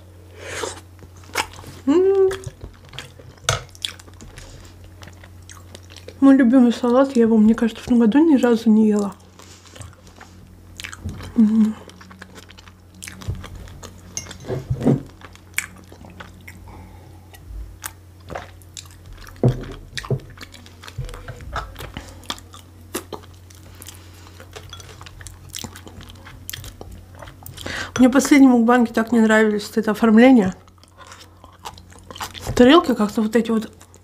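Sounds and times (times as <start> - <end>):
faint low hum: 0.0 - 34.0
louder chewing smacks: 9.0 - 14.0.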